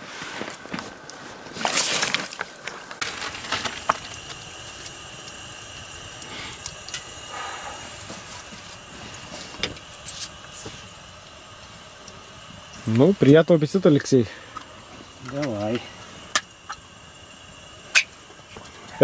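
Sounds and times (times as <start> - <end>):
crunching rustle: 0.0 - 4.2
oil pops and crackles: 0.4 - 19.0
oil sizzling in frying pan: 2.9 - 19.0.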